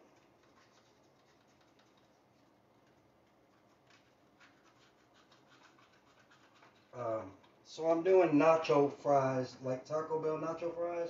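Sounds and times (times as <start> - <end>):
faint scratches and ticks: 0.0 - 7.6.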